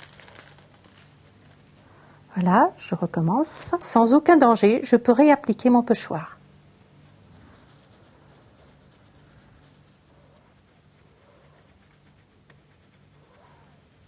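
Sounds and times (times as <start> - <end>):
low steady hum: 0.0 - 14.0
brush scratching on stencil: 7.2 - 14.0.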